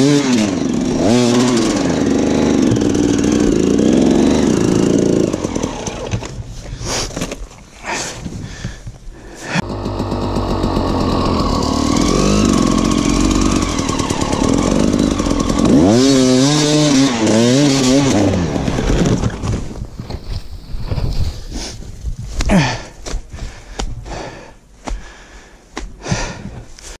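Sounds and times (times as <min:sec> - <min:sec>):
dirt bike engine revving: 0:00.0 - 0:06.3, 0:09.5 - 0:19.4.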